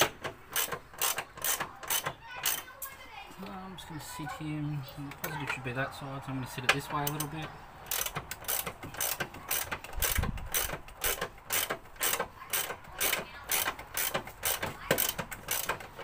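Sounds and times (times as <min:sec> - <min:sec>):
hand ratchet clicking: 0:00.0 - 0:02.9, 0:06.7 - 0:16.0.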